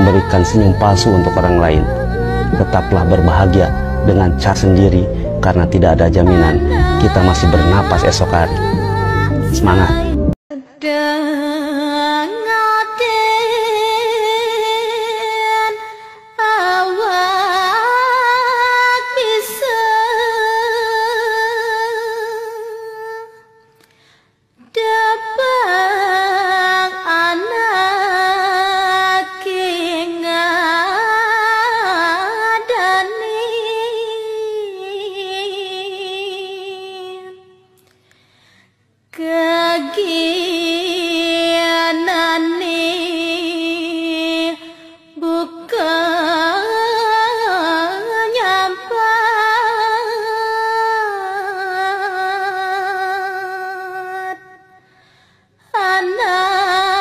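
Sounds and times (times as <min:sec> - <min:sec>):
high solo voice singing: 0:00.0 - 0:13.4.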